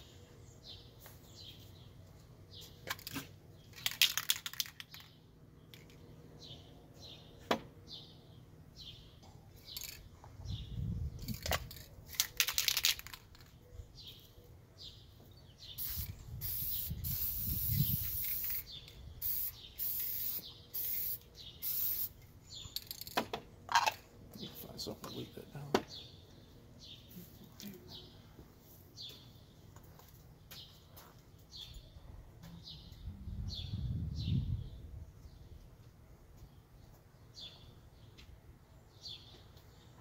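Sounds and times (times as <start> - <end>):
small birds chirping: 0.0 - 23.2, 24.1 - 40.0
spray can ball rattling: 2.8 - 6.0, 9.6 - 10.0, 11.2 - 13.6, 15.8 - 24.0
spray paint hissing: 15.7 - 22.2.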